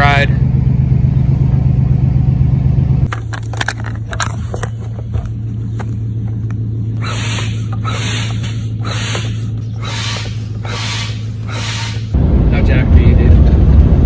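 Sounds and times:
engine idling: 0:00.0 - 0:12.2
hand pump whooshing: 0:07.0 - 0:12.2.

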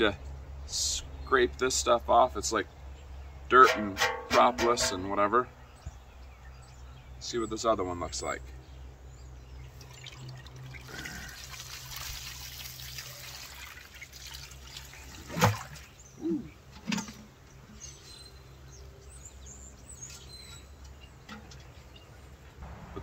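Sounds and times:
metal pot knocking: 0:03.6 - 0:05.0
water pouring onto grass: 0:09.7 - 0:15.9.

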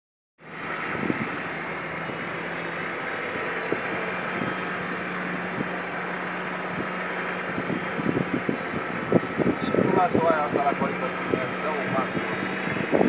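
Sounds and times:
vehicle engine hum: 0:00.4 - 0:13.0.

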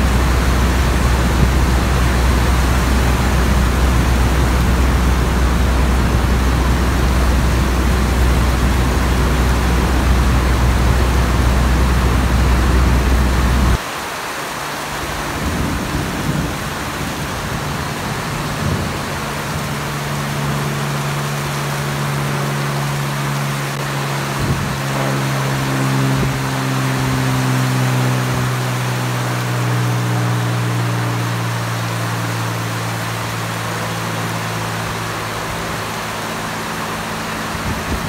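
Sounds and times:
thunder rumbling: 0:00.0 - 0:13.8, 0:15.0 - 0:21.2
higher-pitched engine drone: 0:00.0 - 0:38.0
propeller aircraft engine drone: 0:00.0 - 0:38.0
steady rain hiss: 0:00.0 - 0:38.0.

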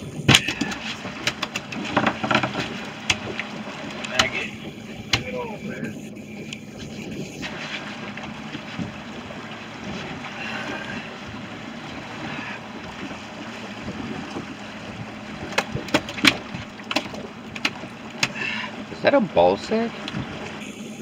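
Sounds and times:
water on boat hull: 0:00.0 - 0:21.0
wind: 0:00.0 - 0:21.0
gear clicks and knocks: 0:00.3 - 0:04.4.

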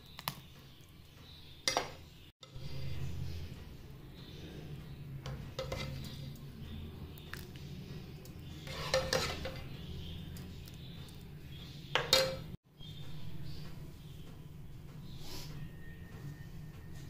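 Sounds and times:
crockery clinking against bowl: 0:12.0 - 0:12.6.

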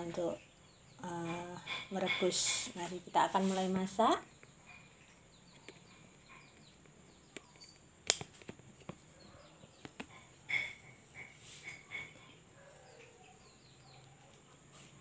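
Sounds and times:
kitchen items clicking and knocking: 0:09.9 - 0:12.4.

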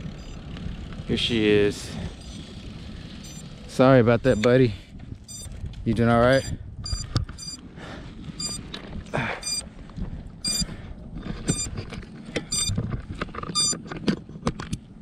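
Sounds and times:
high short beeps: 0:00.2 - 0:00.4, 0:02.2 - 0:02.4, 0:03.2 - 0:03.4, 0:04.3 - 0:04.5, 0:05.3 - 0:05.5, 0:06.3 - 0:07.6, 0:08.4 - 0:08.6, 0:09.2 - 0:09.6, 0:10.4 - 0:10.7, 0:11.5 - 0:11.7, 0:12.5 - 0:12.8, 0:13.6 - 0:13.8
clicks and rustling of handling: 0:08.4 - 0:15.0.

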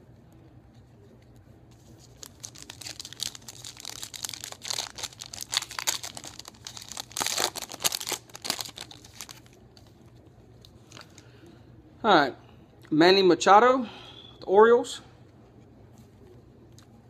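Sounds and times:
wrapper tearing and crinkling: 0:01.8 - 0:09.6.

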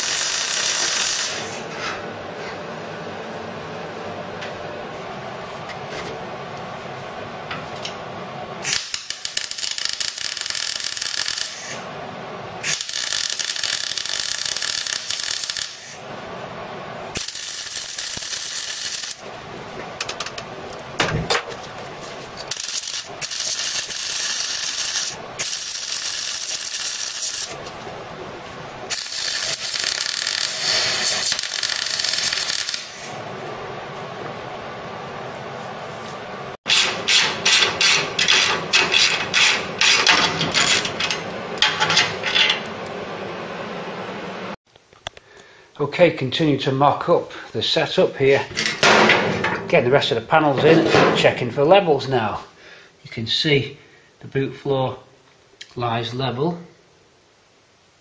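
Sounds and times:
welder crackling: 0:00.0 - 0:01.7, 0:08.6 - 0:16.1, 0:16.9 - 0:33.2, 0:36.7 - 0:43.0.

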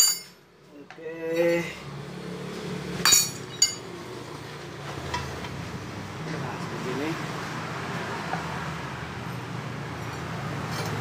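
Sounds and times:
tyre lever clinking on metal: 0:00.0 - 0:00.3.

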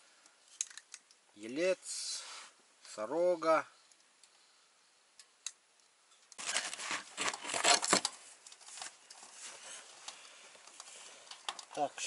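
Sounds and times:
clothing rustling and scraping: 0:06.4 - 0:11.3.

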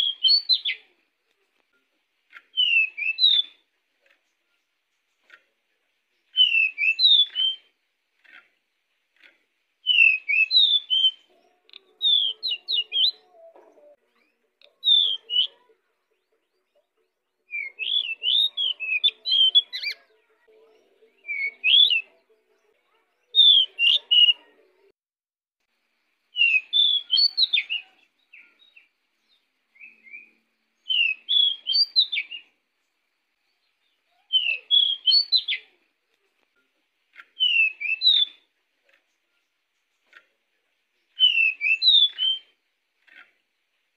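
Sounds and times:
bird singing whistled phrases: 0:00.0 - 0:00.8, 0:02.5 - 0:03.6, 0:06.3 - 0:07.7, 0:09.8 - 0:11.3, 0:12.0 - 0:13.3, 0:14.8 - 0:15.6, 0:17.5 - 0:20.1, 0:21.2 - 0:22.1, 0:23.3 - 0:24.4, 0:26.3 - 0:28.8, 0:29.7 - 0:32.6, 0:34.1 - 0:35.8, 0:37.3 - 0:38.5, 0:41.1 - 0:42.6.

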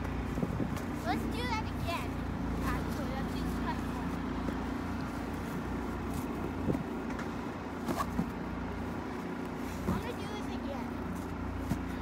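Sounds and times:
distant road traffic hum: 0:00.0 - 0:12.0
plastic sled knocks and scrapes: 0:09.8 - 0:10.4.

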